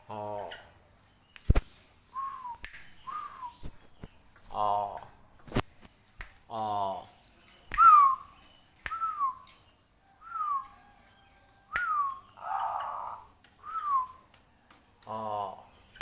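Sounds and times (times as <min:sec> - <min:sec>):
sharp snap: 0:01.3 - 0:01.7, 0:02.5 - 0:03.8, 0:05.5 - 0:06.5, 0:07.7 - 0:08.2, 0:08.8 - 0:09.3, 0:11.7 - 0:12.2
person whistling short falling notes: 0:07.8 - 0:08.2.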